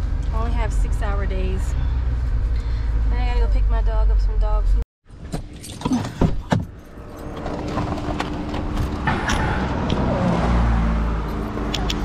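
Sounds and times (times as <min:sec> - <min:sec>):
sharp clicks and knocks: 0:11.3 - 0:12.0.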